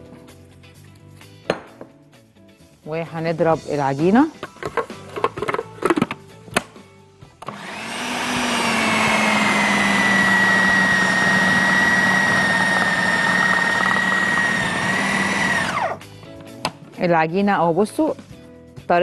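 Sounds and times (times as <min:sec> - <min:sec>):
food processor clicks: 0:07.4 - 0:15.8
food processor motor whining: 0:07.4 - 0:16.0.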